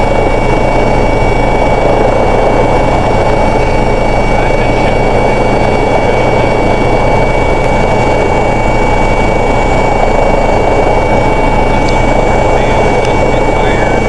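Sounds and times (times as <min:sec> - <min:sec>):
aircraft engines droning: 0:00.0 - 0:14.0
high-pitched whine: 0:00.0 - 0:14.0.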